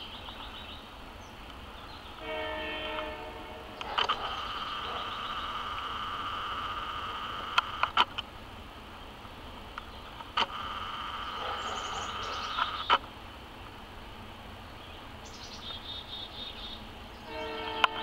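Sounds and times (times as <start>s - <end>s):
high drone of insects: 0.0s - 18.0s
sharp clicks: 3.8s - 4.4s, 7.4s - 8.3s, 9.7s - 10.7s.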